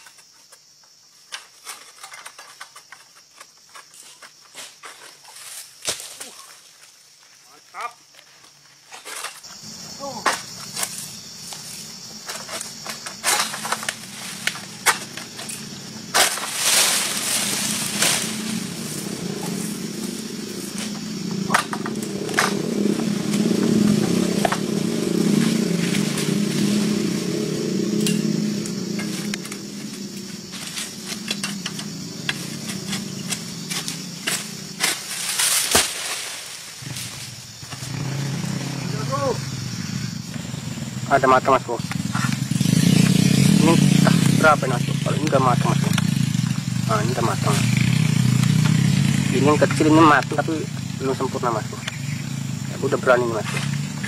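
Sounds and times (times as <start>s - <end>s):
sickle cracking palm fronds: 1.3s - 7.0s, 8.4s - 27.2s, 28.0s - 38.0s, 45.2s - 48.8s
motorcycle engine humming: 9.5s - 35.6s, 36.3s - 54.0s.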